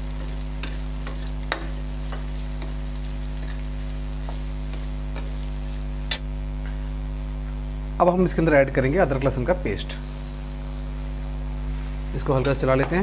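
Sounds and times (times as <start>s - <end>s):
onions sizzling in hot oil: 0.0s - 6.4s
steady low hum: 0.0s - 13.0s.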